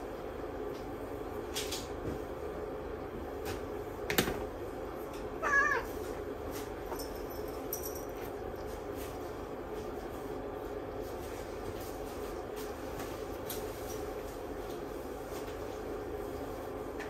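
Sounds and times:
steady low hum: 0.0 - 17.0
cat meowing: 5.4 - 6.0.

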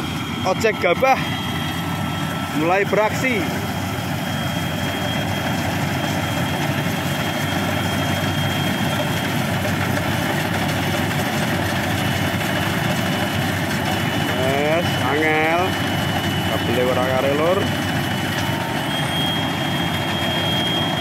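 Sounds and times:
combine harvester drone: 0.0 - 21.0
thin high whine: 14.0 - 21.0.

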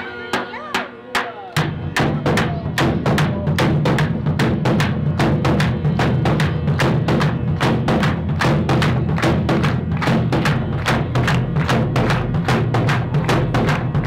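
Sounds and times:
bass drum beat: 1.2 - 14.0.

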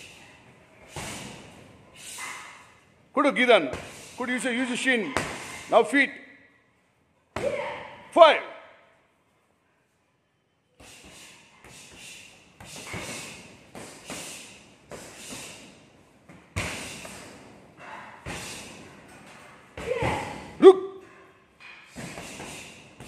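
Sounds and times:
person shouting: 19.8 - 21.0.

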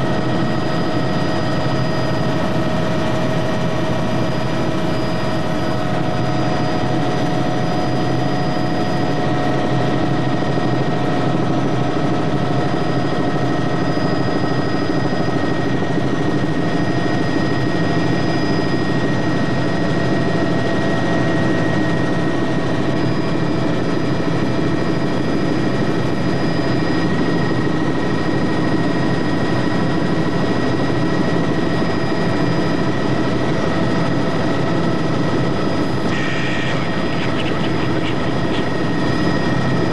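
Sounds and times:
helicopter engine and rotor drone: 0.0 - 39.9
high whining tones: 36.0 - 39.9.

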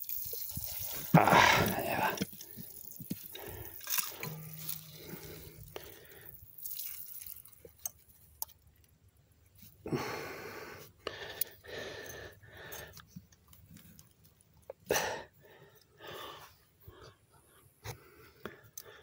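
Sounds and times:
water hissing and spraying: 0.0 - 7.4
water dripping: 0.0 - 8.9.

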